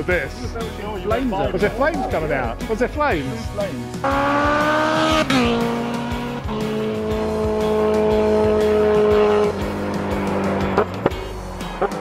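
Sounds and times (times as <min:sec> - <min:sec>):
motorcycle engine revving: 0:03.9 - 0:12.0.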